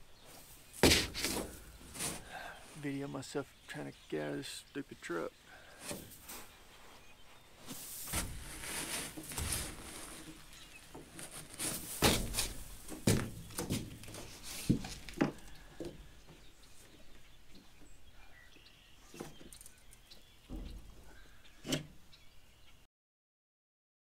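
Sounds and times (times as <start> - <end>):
boots and hands knocking on steel: 0.8 - 2.3, 12.0 - 16.0.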